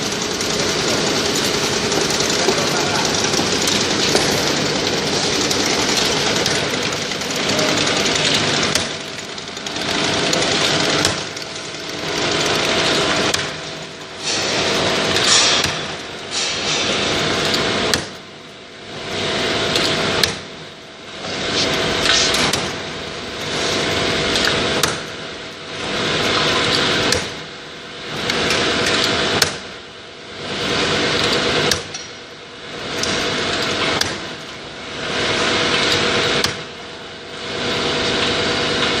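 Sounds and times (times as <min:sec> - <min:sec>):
machine clicks: 0:00.0 - 0:13.7, 0:22.0 - 0:22.8, 0:32.9 - 0:34.5
bottling machinery clattering: 0:00.0 - 0:18.2.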